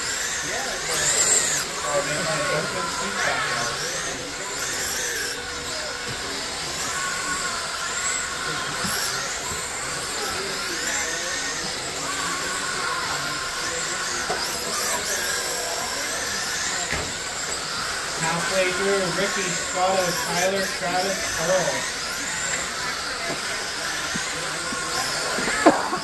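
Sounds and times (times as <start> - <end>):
rc car electric motors whining: 0.0 - 26.0.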